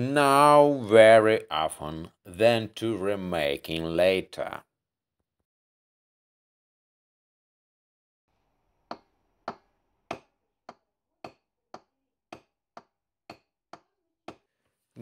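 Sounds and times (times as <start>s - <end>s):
hammer tapping metal tube: 8.9s - 14.5s.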